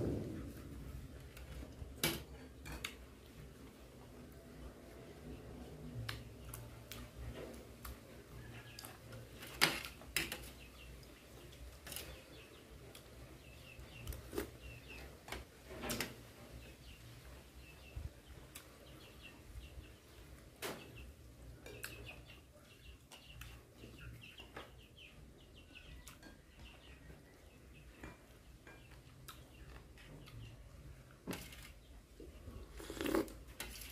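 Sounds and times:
chewing: 32.5s - 33.9s.

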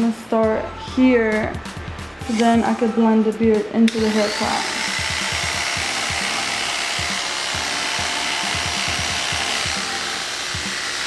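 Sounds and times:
electric hair clippers buzzing: 3.9s - 11.0s.

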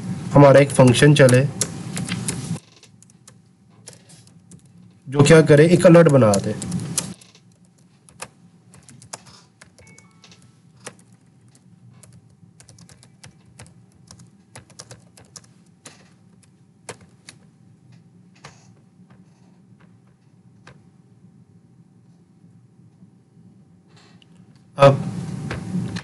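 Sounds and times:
keyboard typing: 0.8s - 17.5s.

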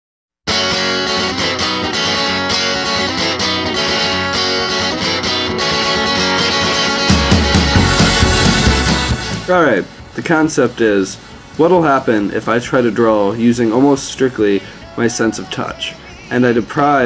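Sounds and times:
bass line: 0.5s - 10.7s
strummed guitar chords: 0.5s - 13.0s.

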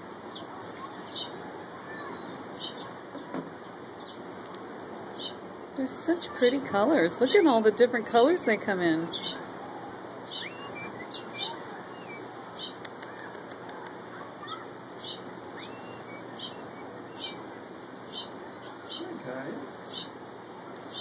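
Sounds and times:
steady background hiss: 0.0s - 21.0s
wings fluttering: 4.0s - 5.3s.

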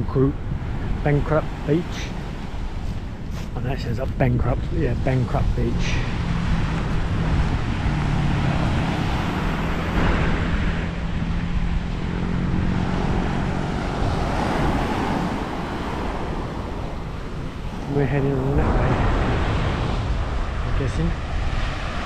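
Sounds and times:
engine hum: 0.0s - 22.0s
wind rumbling on microphone: 0.0s - 22.0s
surf washing onto beach: 11.6s - 22.0s.

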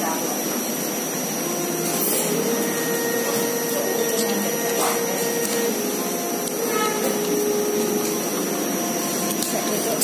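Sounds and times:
mechanical whirring: 0.5s - 10.0s.

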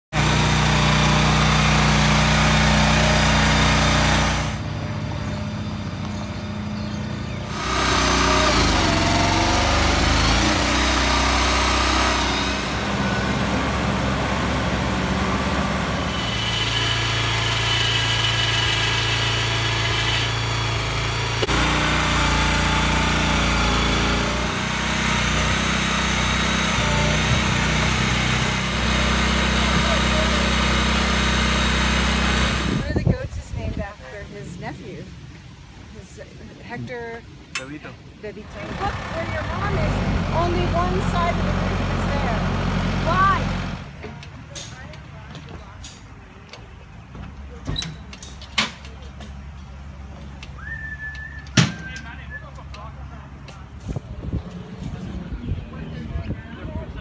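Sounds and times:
small engines running: 0.2s - 33.2s, 38.3s - 44.4s.

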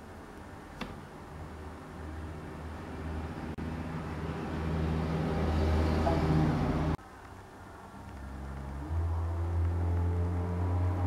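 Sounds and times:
engine humming: 7.6s - 11.0s.

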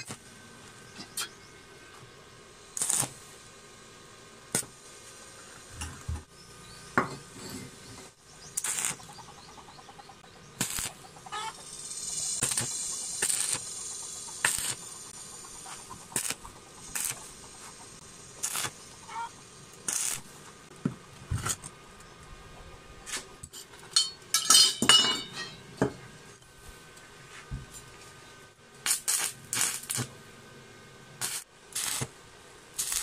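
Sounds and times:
hissing crackle: 0.0s - 6.6s, 7.4s - 9.8s, 10.5s - 20.8s, 28.7s - 30.2s, 31.1s - 33.0s.

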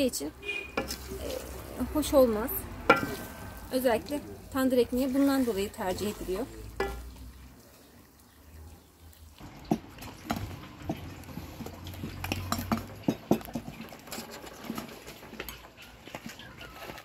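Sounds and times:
wooden spoon scraping metal pan: 0.4s - 7.1s, 10.8s - 17.0s
clinks and taps: 6.8s - 7.1s, 9.6s - 14.8s.

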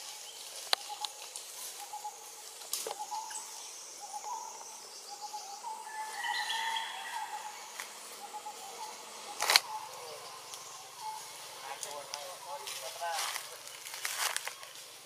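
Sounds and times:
high insect hiss: 0.0s - 15.0s
sharp clicks: 9.4s - 9.7s.

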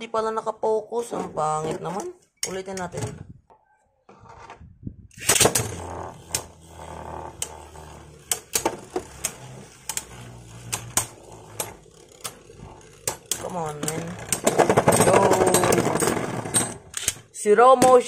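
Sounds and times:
spinning tops ripcord launch: 5.1s - 17.3s
spinning tops whirring: 5.2s - 17.3s
tops clashing with clacks: 7.4s - 18.0s.

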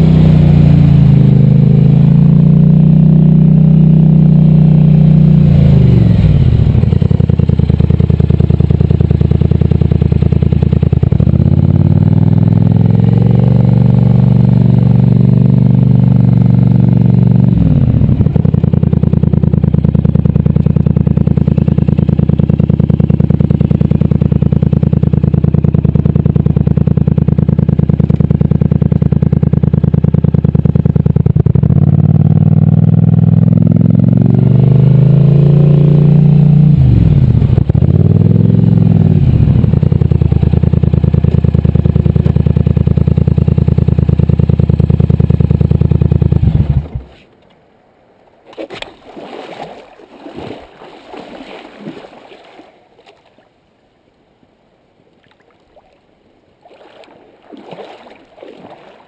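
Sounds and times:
atv engine running and revving: 0.0s - 47.2s.

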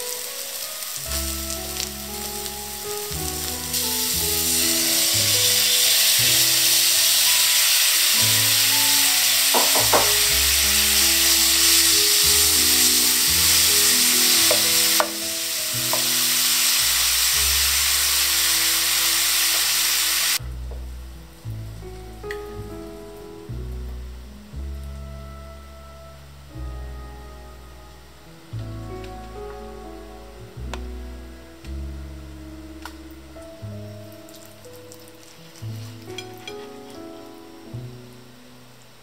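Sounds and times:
oil sizzling in a frying pan: 0.0s - 20.4s, 34.3s - 37.0s.

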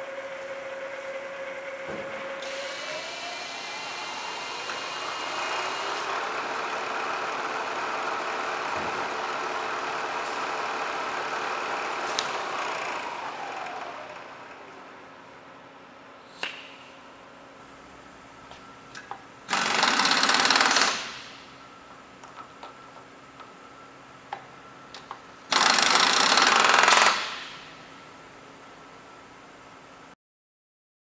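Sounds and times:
milling machine spindle whine: 2.4s - 14.9s.

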